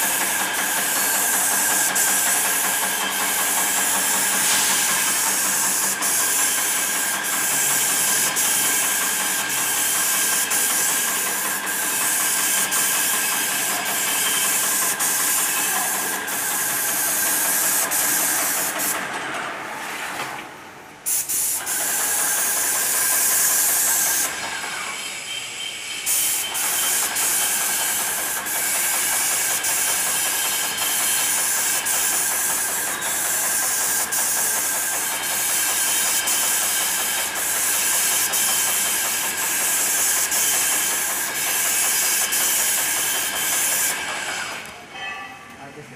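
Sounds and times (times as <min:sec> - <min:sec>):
paint spray gun hissing: 0:00.0 - 0:19.2, 0:21.0 - 0:25.2, 0:26.0 - 0:44.7
sprayer motor whining: 0:00.0 - 0:19.4.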